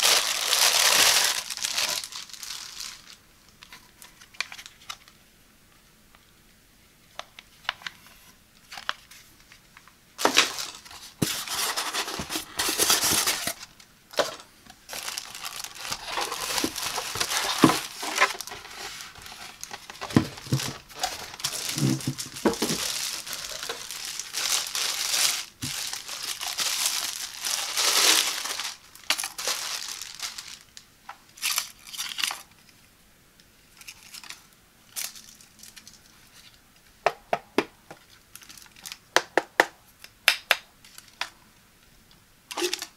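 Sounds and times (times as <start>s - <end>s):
plastic bag crinkling: 0.0s - 5.1s, 10.2s - 30.8s.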